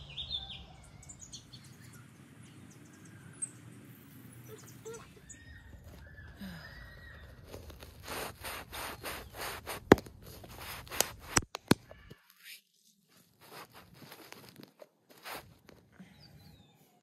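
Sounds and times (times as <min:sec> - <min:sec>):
plastic cups rustling and scraping: 0:05.3 - 0:06.4, 0:07.0 - 0:15.9
sharp plastic clicks: 0:08.1 - 0:12.2.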